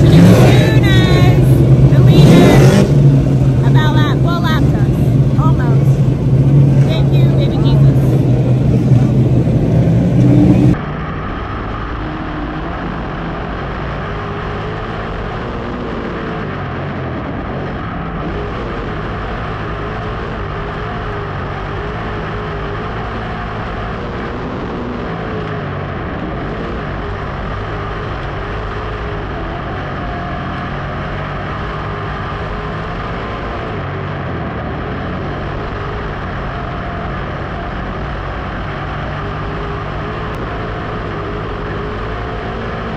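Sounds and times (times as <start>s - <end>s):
loud voice: 0.0s - 2.8s
race car engine accelerating: 0.0s - 42.9s.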